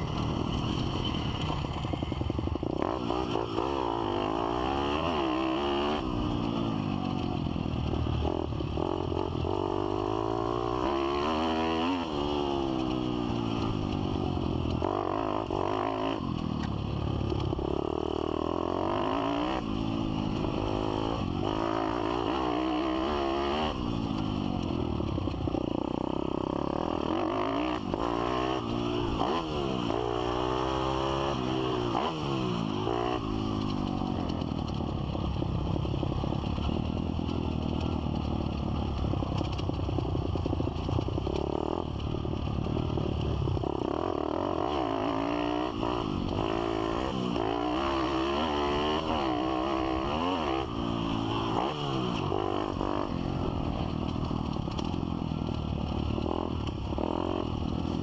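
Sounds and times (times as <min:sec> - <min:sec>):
motorbike engine revving: 0:17.2 - 0:58.0.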